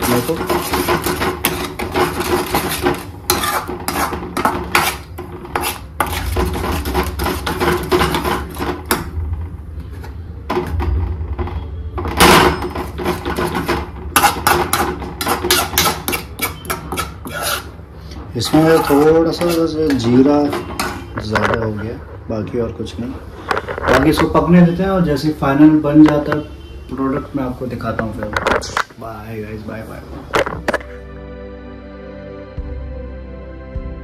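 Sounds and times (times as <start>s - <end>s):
steel spoon scraping a pan: 0.0s - 9.0s, 12.6s - 22.0s.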